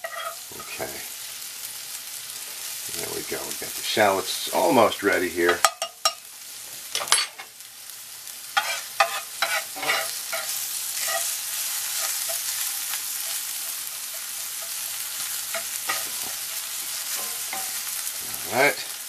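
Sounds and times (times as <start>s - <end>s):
metal spatula scraping pan: 0.0s - 0.9s, 8.6s - 18.2s
shallots sizzling in butter: 0.0s - 19.0s.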